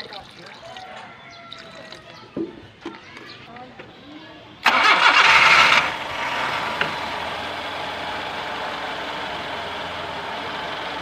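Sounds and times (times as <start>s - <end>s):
car engine starting and idling: 4.6s - 11.0s.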